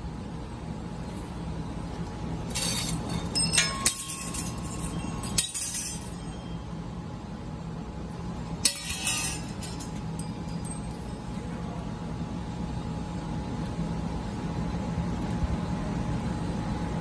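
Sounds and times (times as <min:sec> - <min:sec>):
metal tube pieces clinking: 0:02.5 - 0:06.4, 0:08.6 - 0:11.0.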